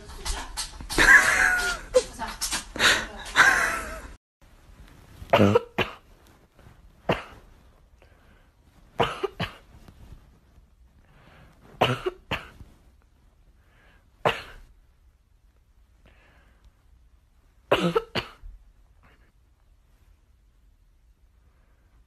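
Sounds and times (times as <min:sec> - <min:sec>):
dog coughing: 0:05.3 - 0:06.0, 0:07.0 - 0:07.5, 0:09.0 - 0:09.7, 0:11.8 - 0:12.6, 0:14.2 - 0:14.7, 0:17.7 - 0:18.5.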